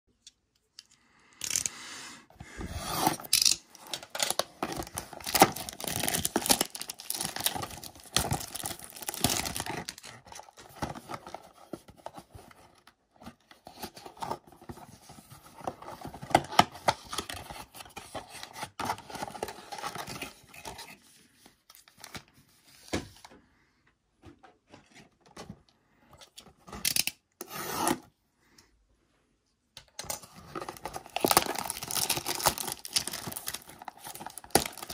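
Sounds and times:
plastic wrap tearing and crinkling: 3.1s - 10.6s, 30.6s - 34.9s
foil packs rustling: 4.7s - 10.6s, 30.6s - 34.9s.

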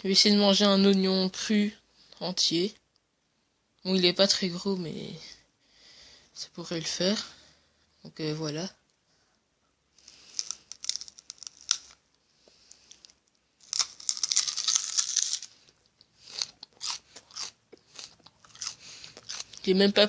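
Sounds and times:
crunching bites of raw onion: 10.0s - 12.0s, 12.7s - 19.7s.

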